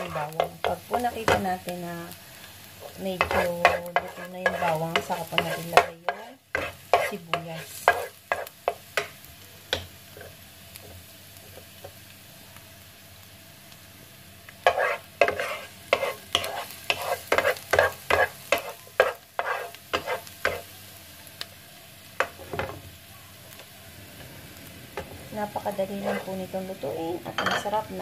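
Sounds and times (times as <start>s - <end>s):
wooden spatula scraping a pan: 0.0s - 1.4s, 2.8s - 8.8s, 14.6s - 20.7s, 25.8s - 26.4s
garlic sizzling in oil: 0.0s - 28.0s.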